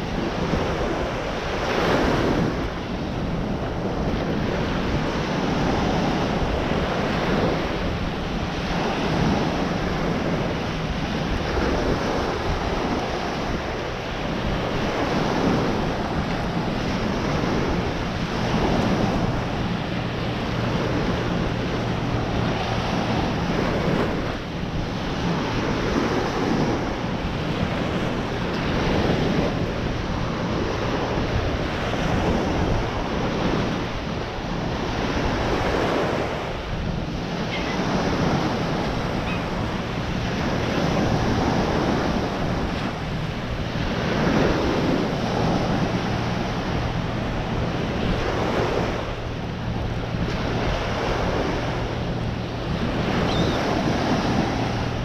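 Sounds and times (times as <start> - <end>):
waves washing onto sand: 0.0 - 55.0
wind noise on microphone: 0.0 - 55.0.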